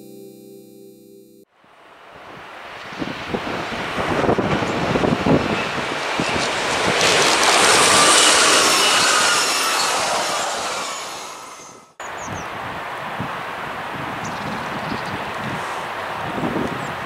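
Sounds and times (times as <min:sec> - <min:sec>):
electric train passing: 0:01.7 - 0:12.0
wind on microphone: 0:02.2 - 0:09.8, 0:12.0 - 0:17.0.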